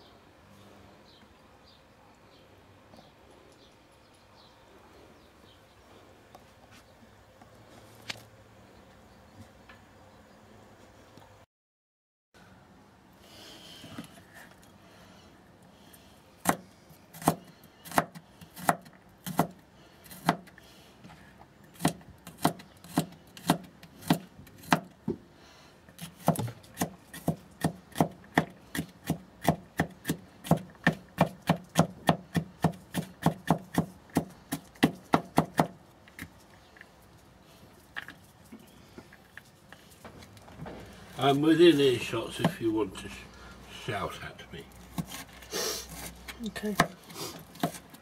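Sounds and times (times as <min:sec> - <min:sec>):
knife chopping garlic on a board: 0:16.4 - 0:20.5, 0:21.8 - 0:24.9, 0:26.0 - 0:36.3, 0:46.7 - 0:48.0.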